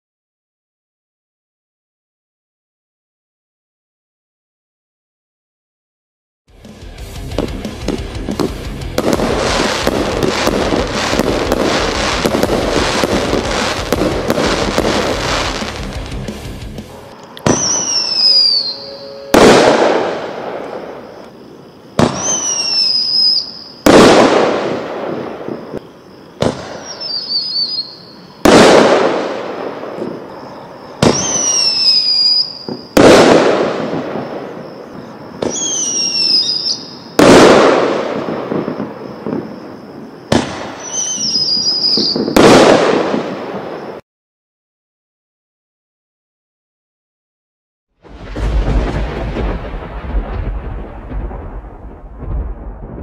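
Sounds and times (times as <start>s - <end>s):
music: 6.5s - 17.2s
firework shell whistling: 7.3s - 16.2s, 16.9s - 21.4s, 22.0s - 25.8s, 26.4s - 29.4s, 30.0s - 44.0s.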